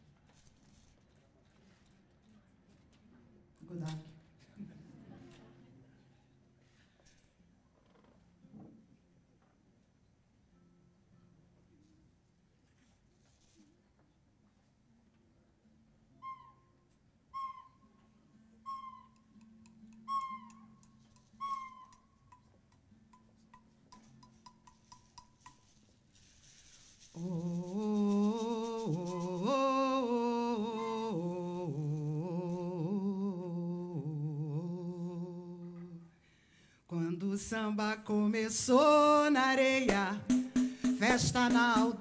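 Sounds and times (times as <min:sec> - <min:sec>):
bird-like hooting calls: 0:17.4 - 0:17.8, 0:18.6 - 0:19.4, 0:20.1 - 0:20.8, 0:21.4 - 0:22.0
wordless sung melody with vibrato: 0:27.2 - 0:36.1, 0:36.9 - 0:42.0.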